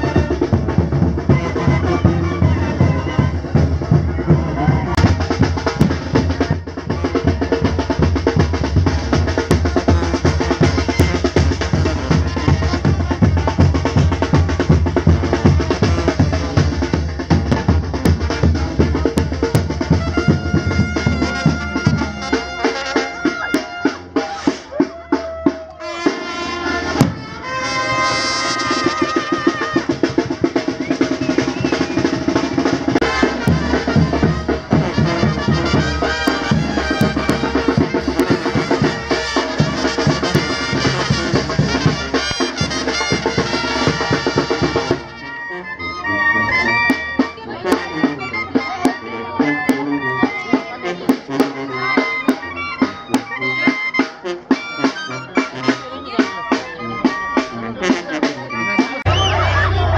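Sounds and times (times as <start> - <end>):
steady drum beat: 0.0 - 45.2
brass band playing: 0.0 - 59.9.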